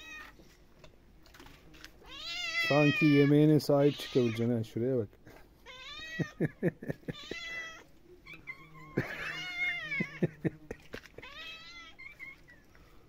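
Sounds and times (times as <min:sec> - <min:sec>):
cats meowing: 0:00.0 - 0:00.4, 0:02.0 - 0:04.5, 0:05.6 - 0:12.7.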